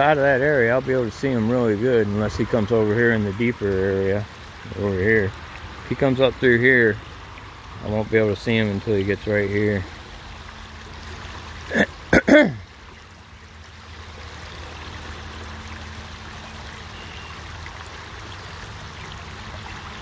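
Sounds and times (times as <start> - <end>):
creek water flowing: 0.0 - 20.0
man clearing his throat: 11.7 - 12.6.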